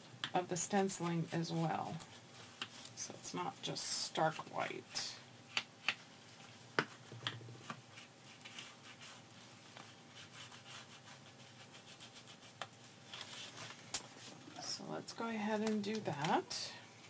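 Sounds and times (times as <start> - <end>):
foam tool rubbing on paper: 7.9 - 12.6.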